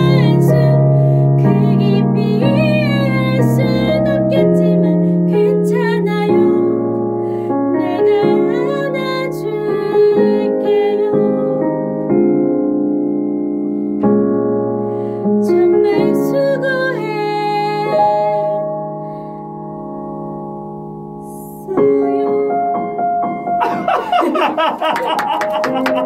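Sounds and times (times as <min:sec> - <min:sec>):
electric piano chords: 0:00.0 - 0:26.0
hand clapping: 0:24.0 - 0:26.0.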